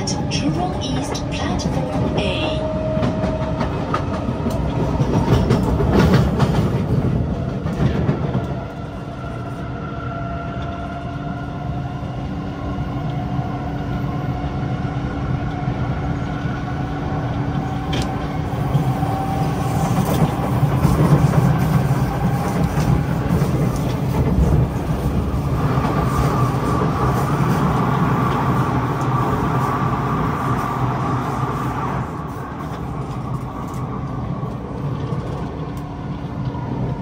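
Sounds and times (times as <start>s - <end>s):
rail clatter: 0.0s - 8.6s
train wheels rumbling on track: 0.0s - 37.0s.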